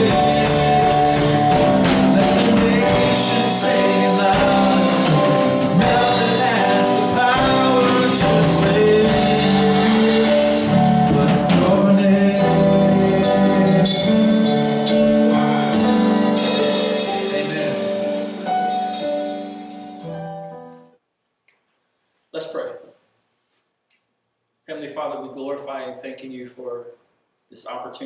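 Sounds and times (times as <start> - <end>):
man singing: 0.0 - 18.2
gospel music on electronic keyboard: 0.0 - 21.0.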